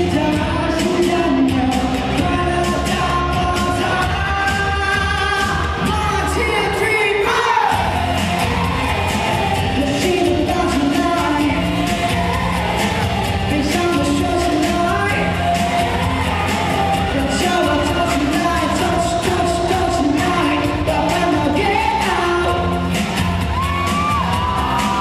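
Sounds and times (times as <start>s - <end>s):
man singing pop into microphone: 0.0s - 7.8s, 9.8s - 11.9s, 13.5s - 16.0s, 17.0s - 22.9s
backing track over pa: 0.0s - 25.0s.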